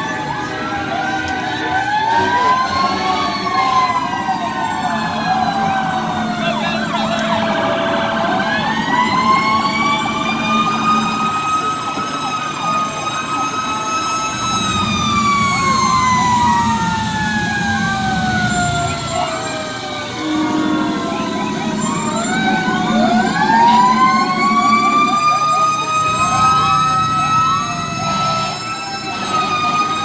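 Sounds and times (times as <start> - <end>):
fire engine siren wailing: 0.0 - 30.0
siren whoops: 0.0 - 30.0
truck engines rumbling: 0.0 - 30.0.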